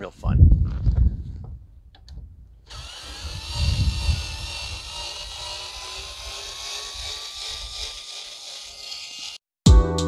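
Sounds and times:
cordless screwdriver motor whining: 2.7s - 9.4s.

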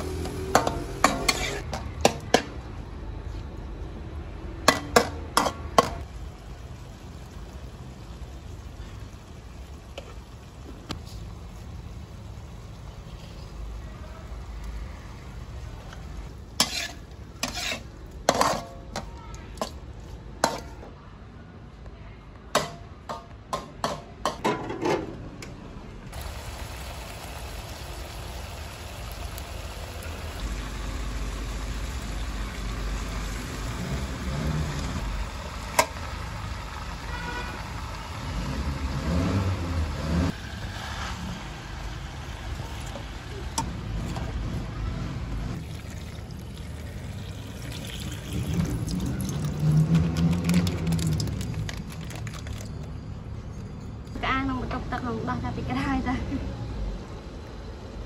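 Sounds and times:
food sizzling: 0.0s - 1.7s, 4.7s - 20.8s, 26.1s - 44.8s, 45.4s - 52.8s
spatula scraping metal wok: 0.1s - 1.8s, 16.4s - 19.1s.

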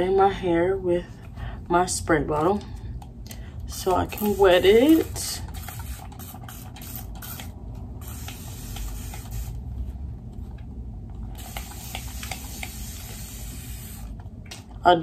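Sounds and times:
spray bottle spritzing: 4.1s - 9.6s, 11.4s - 14.2s.

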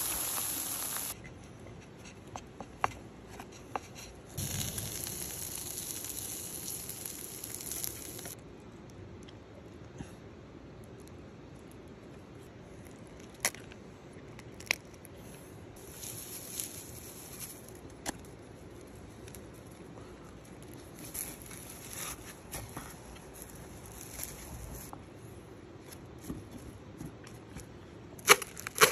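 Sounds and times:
flakes rustling and pattering: 0.0s - 1.2s, 4.4s - 8.4s, 15.8s - 19.8s, 20.5s - 24.9s.

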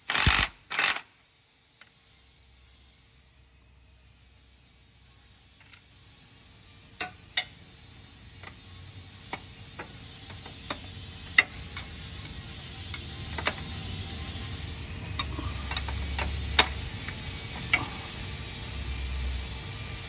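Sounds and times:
ratchet wrench clicking: 0.0s - 1.1s, 9.3s - 14.2s, 15.1s - 17.9s.

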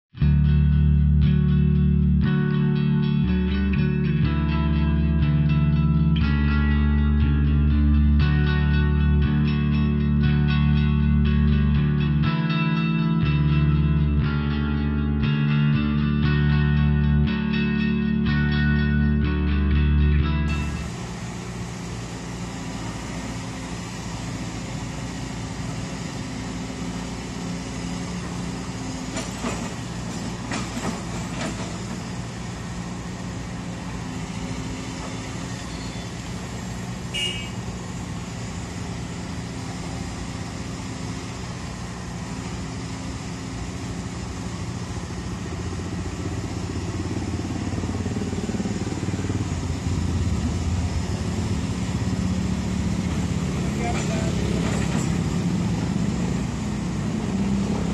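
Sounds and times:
diesel engines running: 0.2s - 57.9s
motorcycle passing: 33.4s - 57.9s.

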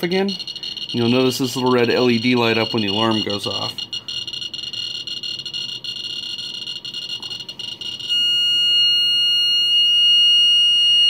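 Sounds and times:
high-pitched alarm tone: 0.0s - 11.0s
geiger counter clicking: 0.1s - 8.2s.

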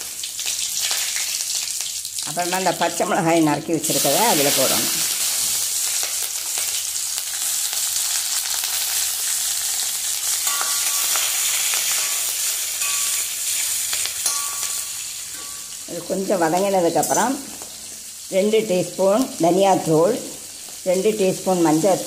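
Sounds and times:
chillies sizzling in hot oil: 0.0s - 22.0s
metal spatula stirring: 10.4s - 15.8s.

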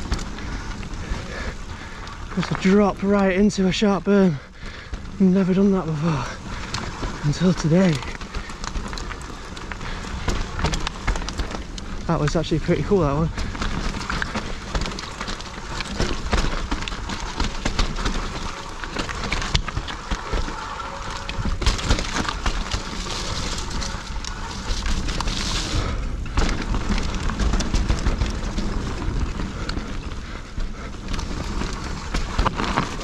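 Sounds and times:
bike rattling: 0.0s - 33.0s
tyres rolling over loose stones: 0.0s - 33.0s.

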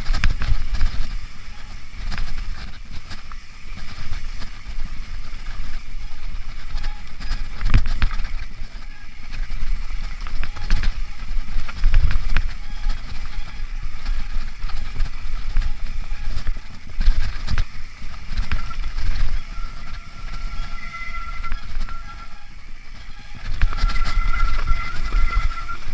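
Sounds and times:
bike rattling over bumps: 0.0s - 25.9s
tyres on dirt and leaves: 0.0s - 25.9s
wind rumbling on microphone: 0.0s - 25.9s
faint high squeal: 5.3s - 25.9s.

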